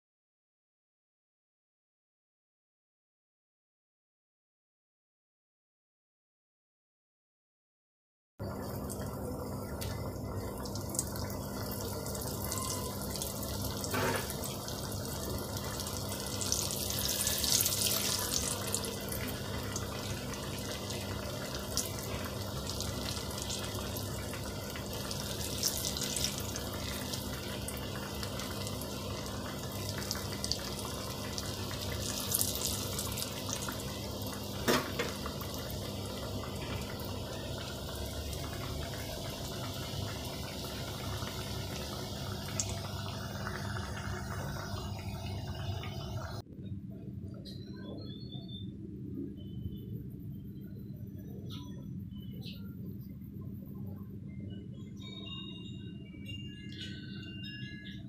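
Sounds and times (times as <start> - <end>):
oil sizzling and crackling: 8.6 - 46.4.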